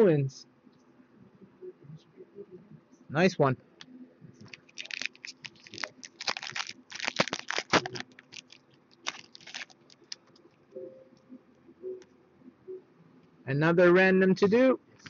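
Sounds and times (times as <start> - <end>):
foil wrapper crinkling: 4.5 - 10.4.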